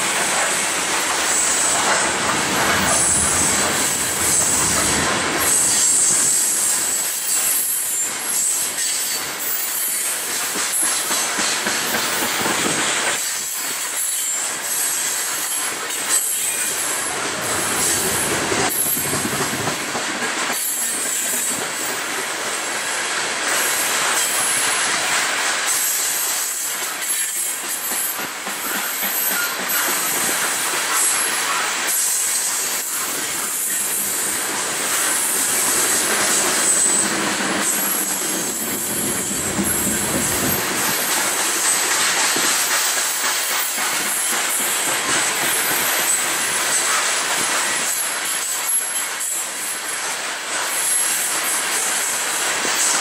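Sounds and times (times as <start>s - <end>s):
train wheels rumbling on rail: 0.0s - 53.0s
high-pitched wheel squeal: 35.9s - 39.3s.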